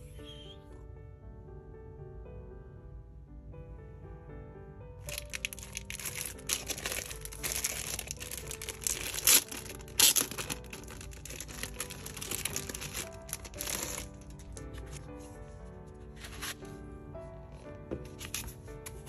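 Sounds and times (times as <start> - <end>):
background music: 0.0 - 19.0
plastic bag crinkling: 5.1 - 15.0.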